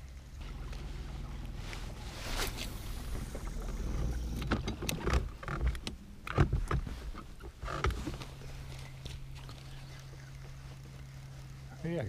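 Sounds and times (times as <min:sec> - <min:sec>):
low rumble: 0:00.0 - 0:06.2.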